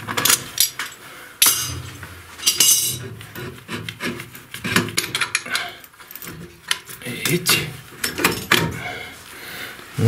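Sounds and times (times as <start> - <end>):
wrench scraping on pipe fitting: 2.4 - 8.8.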